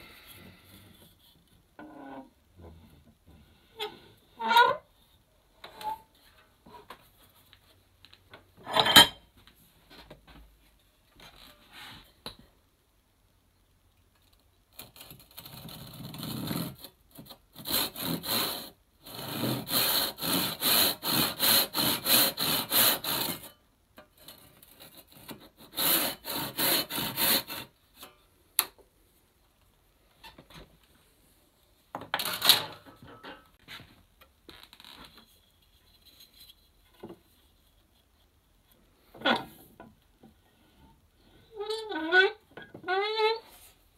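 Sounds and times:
handsaw sawing wood: 0:17.6 - 0:23.5, 0:24.9 - 0:27.7.

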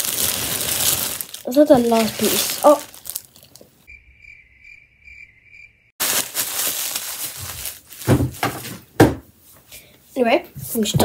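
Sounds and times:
cricket-like chirping trill: 0:03.9 - 0:06.0.

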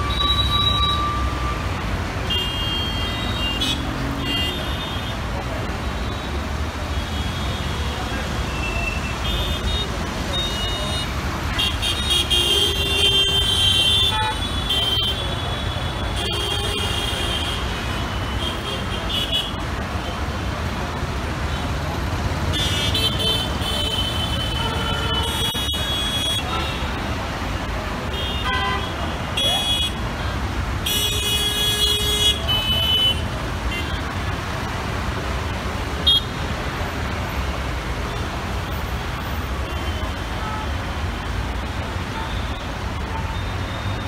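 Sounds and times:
traffic engine and tyre rumble: 0:00.0 - 0:44.0
vehicle horns honking: 0:02.3 - 0:05.2, 0:28.1 - 0:30.0.

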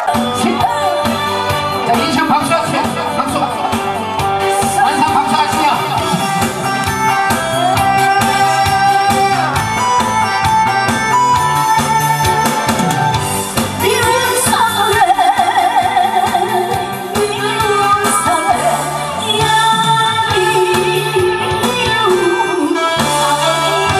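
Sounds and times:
woman singing into microphone: 0:00.0 - 0:02.2, 0:13.8 - 0:23.9
recorded backing track: 0:00.0 - 0:23.9.

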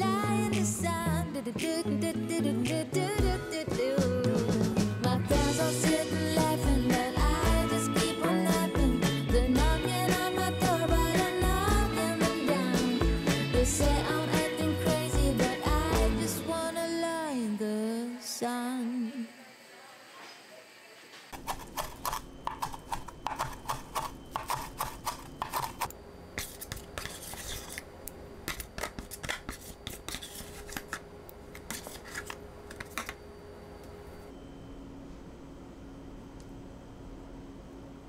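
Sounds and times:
pop song with singing: 0:00.0 - 0:19.5
knife chopping on cutting board: 0:21.4 - 0:25.9.

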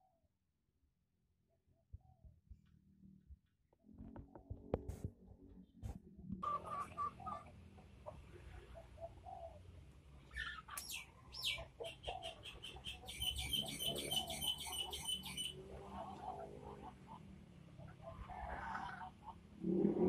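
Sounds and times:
chickens making low calls: 0:06.4 - 0:20.0
high chirps: 0:10.7 - 0:15.6.

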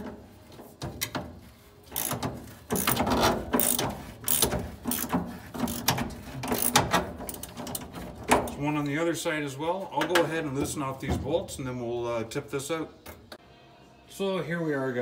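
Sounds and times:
socket ratchet clicking: 0:02.0 - 0:03.0, 0:03.6 - 0:05.1, 0:05.7 - 0:07.6.

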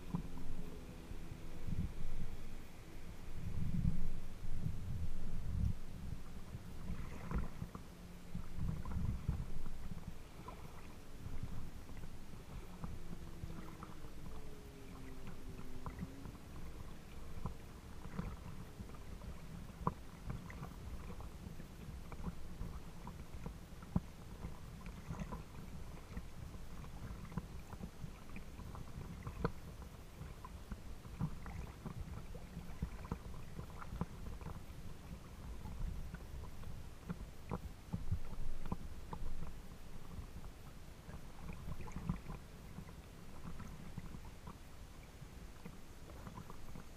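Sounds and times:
low rumble: 0:00.0 - 0:21.4
water lapping against kayak hull: 0:00.0 - 0:46.9.

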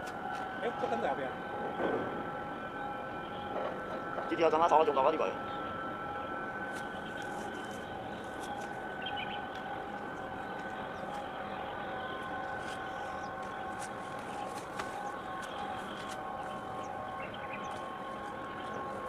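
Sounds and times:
distant ship machinery drone: 0:00.0 - 0:19.0
faint whining tones: 0:00.0 - 0:19.0.

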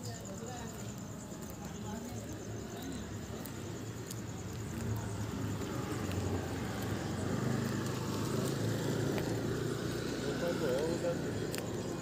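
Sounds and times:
vehicle engine hum: 0:02.3 - 0:12.0.

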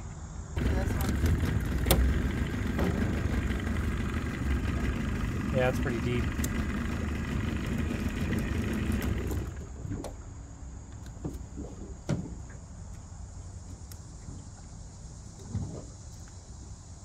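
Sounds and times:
dull thump: 0:00.6 - 0:03.9, 0:11.2 - 0:12.6
outboard motor idling: 0:00.6 - 0:12.9.

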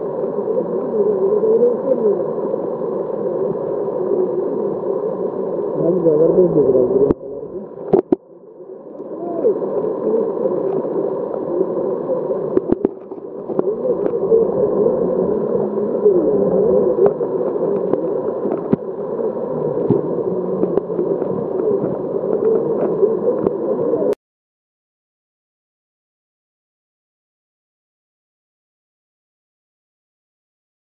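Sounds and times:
muffled underwater bubbling sea water: 0:00.0 - 0:24.2.

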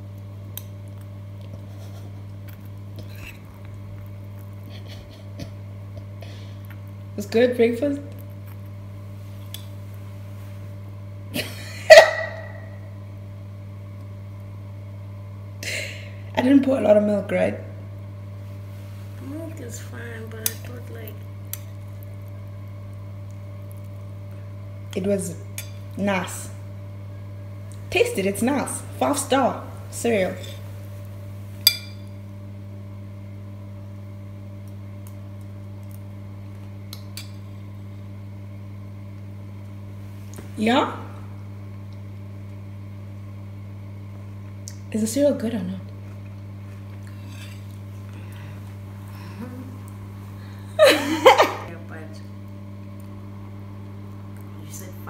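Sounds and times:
steady low hum: 0:00.0 - 0:55.0
metal spoon clinking ceramic bowl: 0:31.7 - 0:32.1
person coughing: 0:50.8 - 0:51.7.

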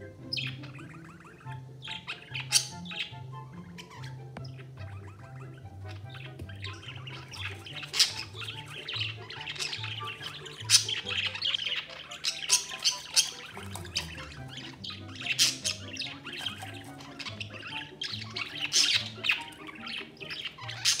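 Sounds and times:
budgerigar chirps and squawks: 0:00.0 - 0:21.0
background music with bass: 0:13.5 - 0:21.0.

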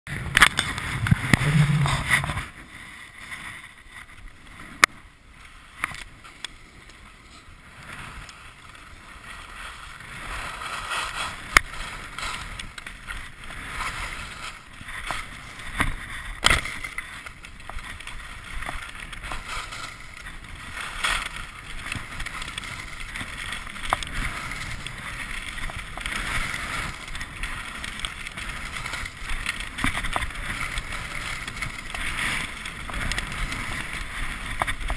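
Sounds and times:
wind on microphone: 0:00.1 - 0:02.7
skis scraping over snow: 0:00.1 - 0:34.9.

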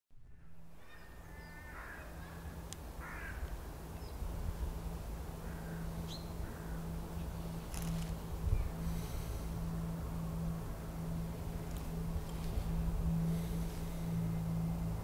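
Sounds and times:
low steady hum: 0:00.1 - 0:15.0
faint high bird chirps: 0:00.2 - 0:02.6
crows cawing: 0:00.8 - 0:03.6, 0:05.3 - 0:07.0.

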